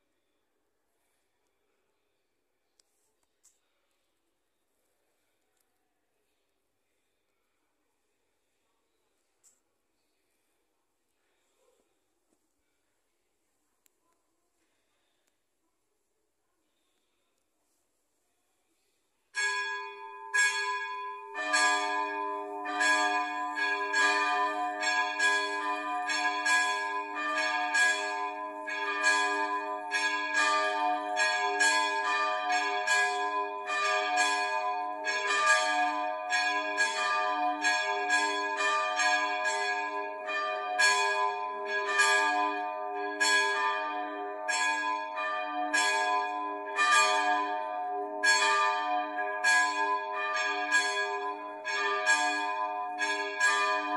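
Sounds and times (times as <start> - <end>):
church bells pealing: 19.4 - 53.9.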